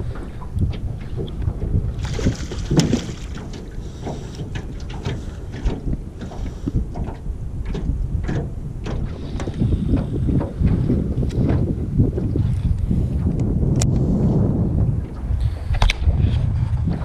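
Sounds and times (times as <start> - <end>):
wind buffeting microphone: 0.0 - 17.0
light knocks and clicks: 2.5 - 11.7.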